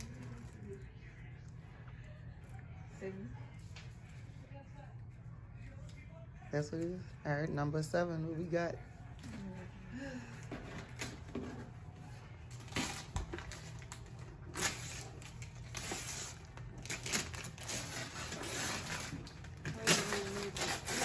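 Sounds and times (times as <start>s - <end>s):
wrapping paper ripping: 12.5s - 21.0s.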